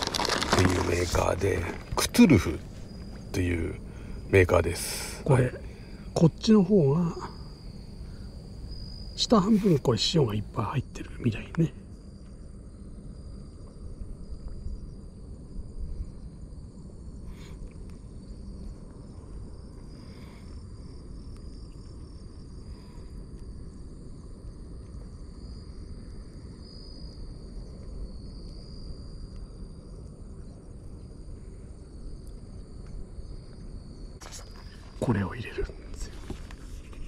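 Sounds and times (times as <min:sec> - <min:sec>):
insects trilling: 0:00.0 - 0:37.0
low outdoor rumble: 0:00.0 - 0:37.0.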